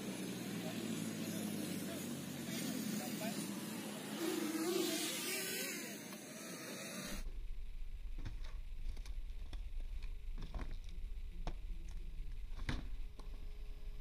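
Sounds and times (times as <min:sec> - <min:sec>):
steady low rumble: 0:07.2 - 0:14.0.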